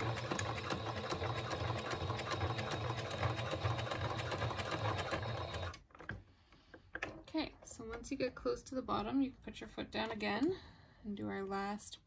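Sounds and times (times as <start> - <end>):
sewing machine motor hum: 0.0 - 5.8
sewing machine needle ticking: 0.0 - 5.8.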